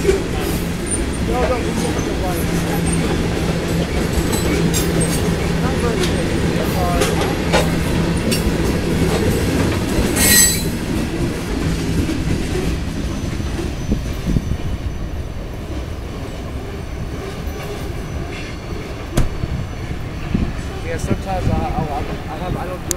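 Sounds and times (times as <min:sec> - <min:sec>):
train wheels rumbling on rail: 0:00.0 - 0:22.9
high-pitched wheel squeal: 0:10.2 - 0:10.7.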